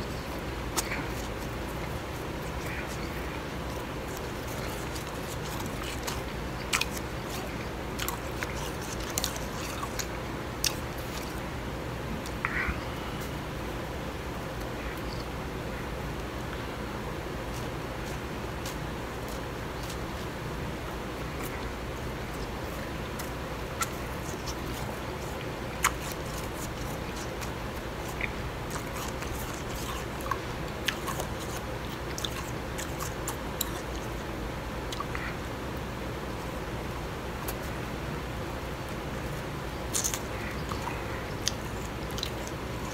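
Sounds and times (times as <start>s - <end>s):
ice crunching in mouth: 0.7s - 11.4s, 23.2s - 34.2s, 39.9s - 42.9s.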